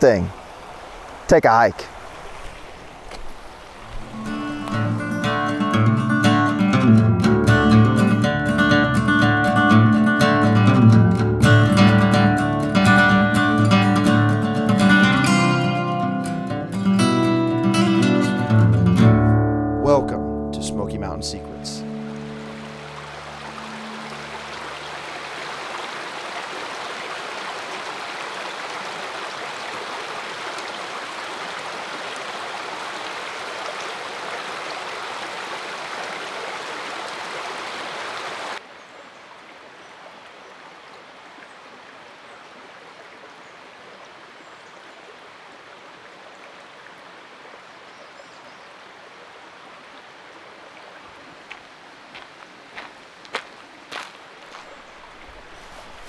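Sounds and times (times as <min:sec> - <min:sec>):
creek water rushing over rocks: 0:00.0 - 0:06.6, 0:21.8 - 0:56.0
woodland hiss: 0:00.2 - 0:05.0, 0:50.0 - 0:56.0.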